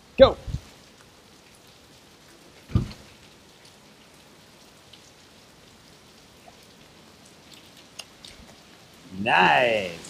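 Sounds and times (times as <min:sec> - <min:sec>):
rain falling on pavement: 0:00.0 - 0:10.0
short low thump: 0:02.7 - 0:03.0.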